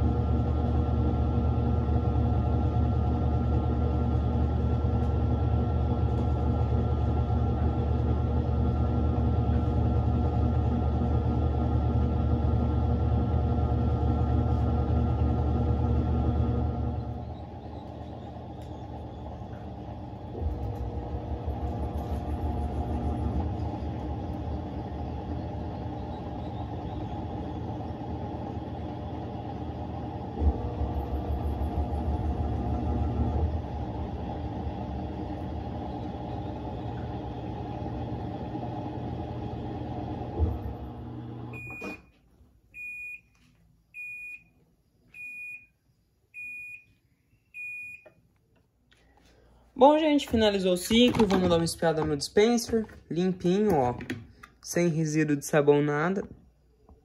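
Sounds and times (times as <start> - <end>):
washing machine motor hum: 0.0 - 43.4, 45.2 - 57.0.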